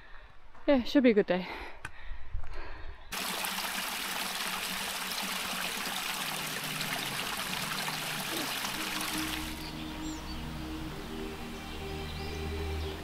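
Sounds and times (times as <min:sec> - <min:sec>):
stream water running: 0:03.1 - 0:11.8.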